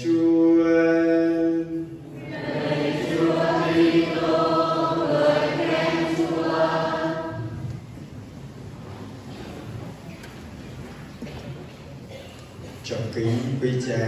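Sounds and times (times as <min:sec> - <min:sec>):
congregation singing: 0:00.0 - 0:08.0.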